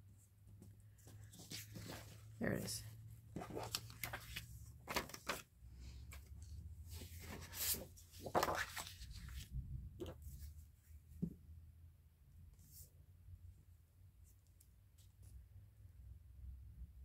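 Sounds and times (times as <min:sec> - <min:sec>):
paper rustling and sliding: 0:01.0 - 0:02.3, 0:03.4 - 0:10.5.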